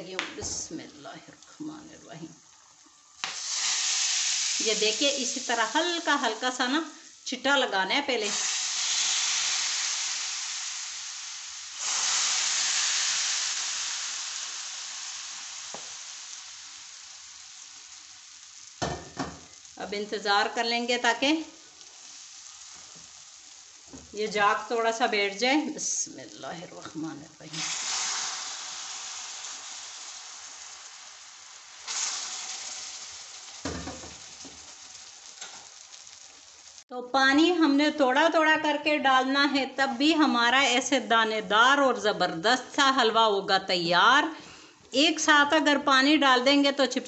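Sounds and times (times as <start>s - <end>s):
water sizzling in hot oil: 1.6s - 36.9s.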